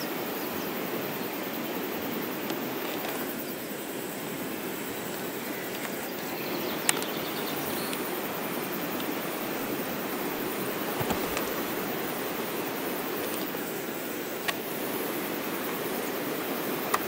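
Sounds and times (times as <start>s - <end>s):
rushing outdoor background noise: 0.0s - 17.0s
faint knocks: 10.4s - 11.8s.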